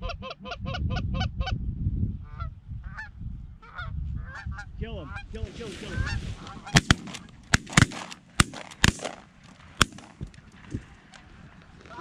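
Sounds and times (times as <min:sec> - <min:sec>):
shotgun blasts: 0:06.7 - 0:10.4.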